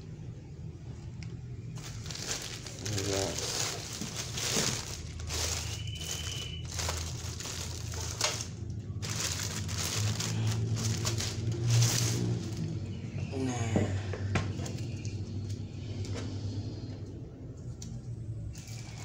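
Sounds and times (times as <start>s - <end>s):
plastic bag crinkling: 1.8s - 12.8s.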